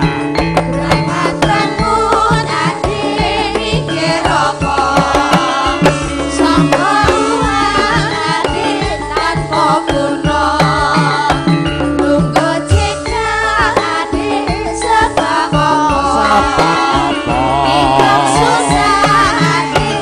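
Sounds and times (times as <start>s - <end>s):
hand drum beating: 0.0s - 13.0s, 15.2s - 20.0s
keyboard: 0.0s - 20.0s
people singing: 0.7s - 20.0s
electric guitar: 16.0s - 20.0s.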